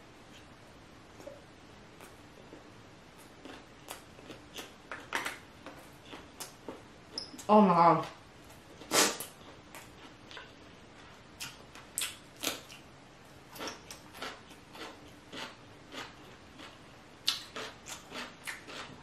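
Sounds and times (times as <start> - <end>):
wet crunchy chewing: 13.5 - 19.0.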